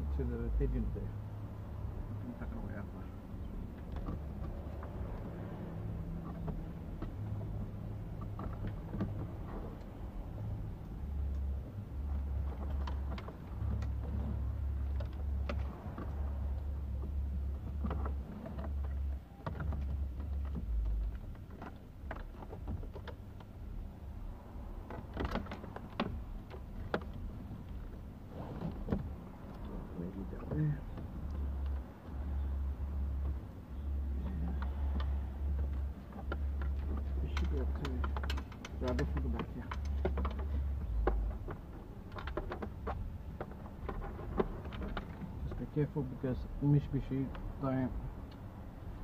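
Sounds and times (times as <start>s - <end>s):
low uneven rumble: 0.0s - 49.0s
clicks and knocks of plastic trim: 24.6s - 28.0s, 30.4s - 45.6s.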